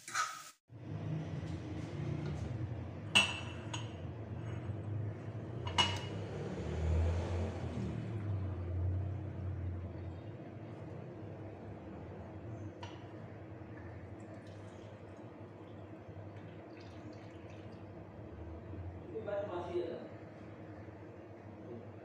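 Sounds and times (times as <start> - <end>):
ceramic mugs clinking: 3.1 - 4.1, 5.6 - 6.2
tea pouring into mug: 12.9 - 18.2.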